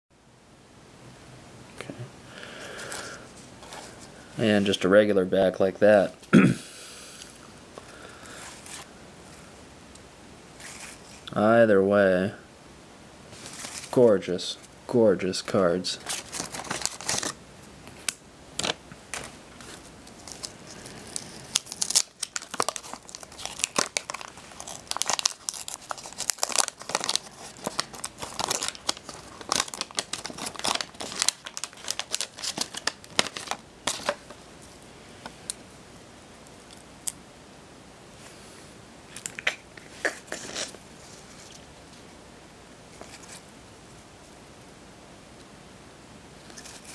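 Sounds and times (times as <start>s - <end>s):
wax paper wrapper tearing and crinkling: 16.0s - 17.4s, 18.6s - 34.3s, 39.2s - 41.5s.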